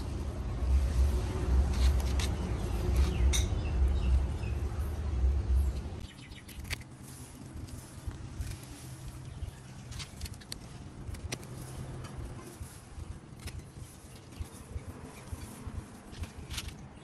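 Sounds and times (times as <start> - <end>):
wind buffeting microphone: 7.4 - 17.0.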